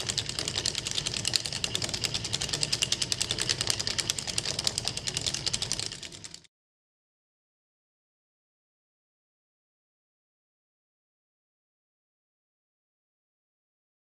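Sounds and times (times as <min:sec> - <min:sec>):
rapid mechanical clicking: 0:00.0 - 0:06.5.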